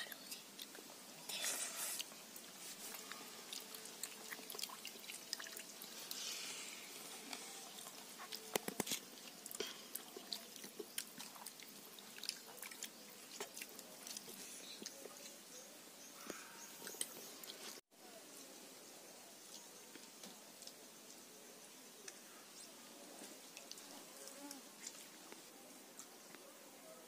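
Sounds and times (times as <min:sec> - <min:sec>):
chewing: 0:02.8 - 0:06.2, 0:07.3 - 0:15.4.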